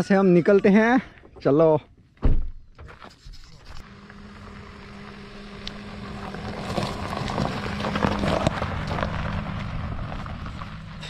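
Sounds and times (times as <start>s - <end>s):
vehicle engine idling: 3.8s - 11.0s
rustling noise: 6.1s - 11.0s.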